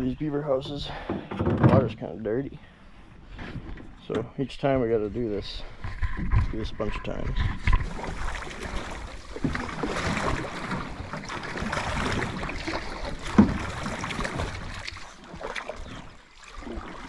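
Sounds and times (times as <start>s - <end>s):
water swishing along hull: 0.0s - 17.0s
paddles splashing in water: 7.5s - 17.0s.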